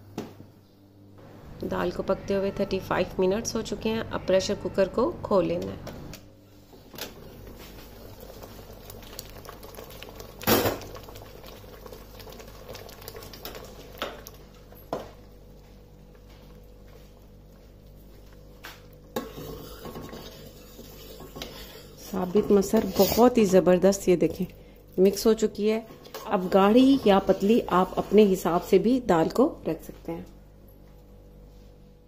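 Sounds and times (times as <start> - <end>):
spoon scraping steel pot: 19.2 - 23.4.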